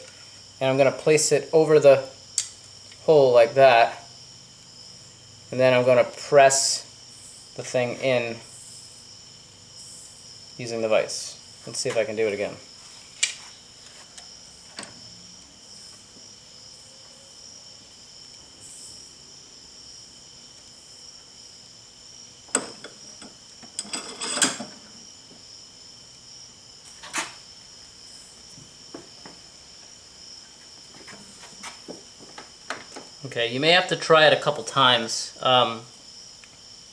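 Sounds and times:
metal clinks and knocks: 22.5 - 24.9.

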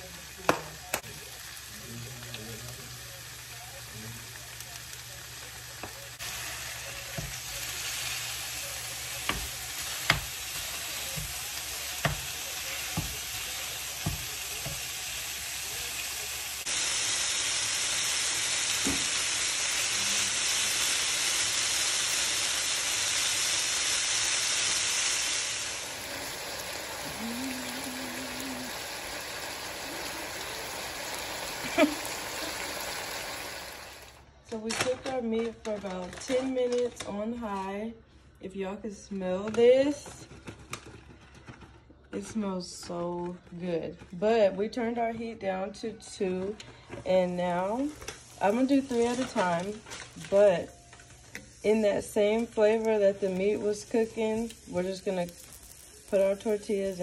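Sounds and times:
steak sizzling in a frying pan: 0.0 - 34.2, 47.3 - 57.0
wooden spoon knocking on pan: 9.2 - 10.4, 12.0 - 12.3, 12.9 - 13.2, 14.0 - 14.9.

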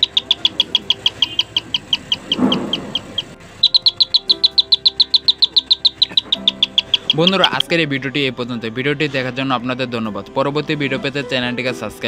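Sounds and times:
electronic bell high chirps: 0.0 - 7.6.

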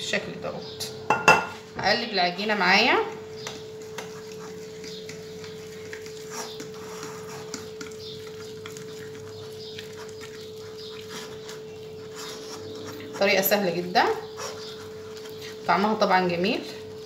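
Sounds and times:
fork stirring dough in bowl: 2.4 - 17.0.

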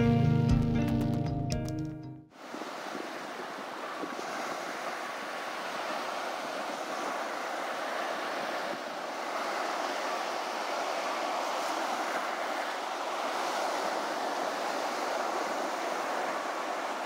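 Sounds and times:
ocean waves breaking on beach: 2.3 - 17.0.

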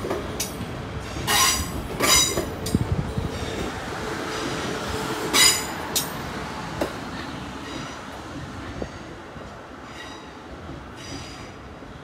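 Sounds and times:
train rumble: 0.0 - 12.0
train wheels squealing: 1.1 - 2.4, 9.8 - 11.6.

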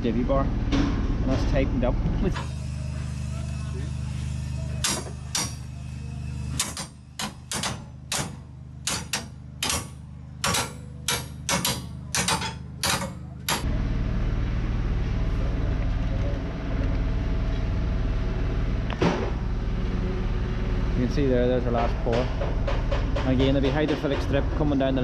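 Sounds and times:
hammer striking steel nut: 4.8 - 5.7, 6.5 - 13.7
steady low rumble: 12.0 - 25.0.

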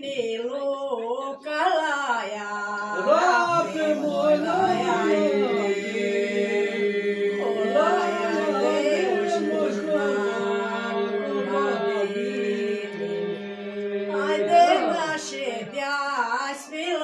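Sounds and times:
sung drone: 3.0 - 15.2.

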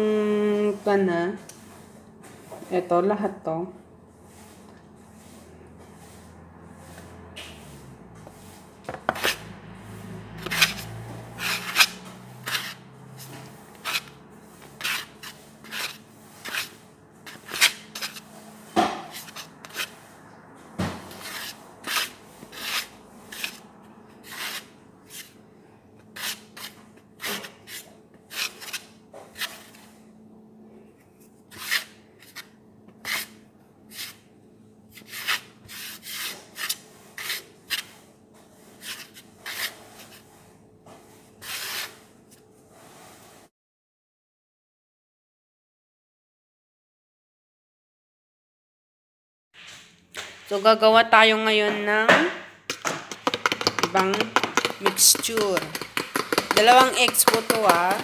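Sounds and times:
hands rubbing chicken in flour: 53.3 - 58.0.

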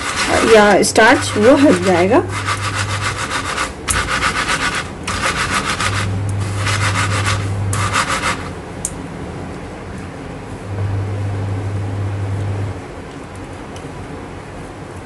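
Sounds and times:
cloth rubbing on wooden board: 0.0 - 8.5.

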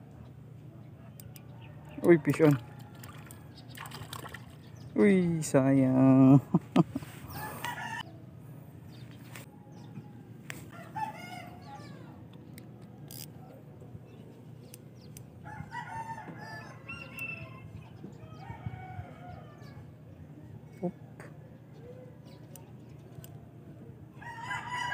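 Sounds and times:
low background hum: 0.0 - 24.9
rooster crowing: 7.3 - 8.1, 10.7 - 12.2, 15.4 - 19.9, 24.2 - 24.9.

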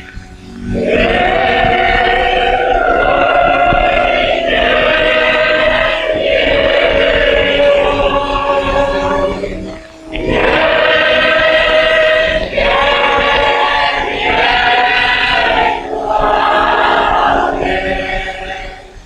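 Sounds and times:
congregation singing a hymn: 0.0 - 19.0.

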